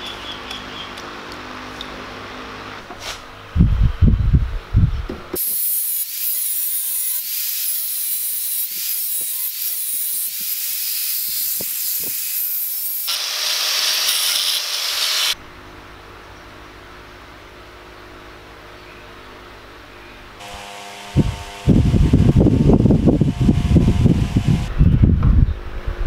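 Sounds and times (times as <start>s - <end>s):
angle grinder grinding steel: 5.4s - 15.4s.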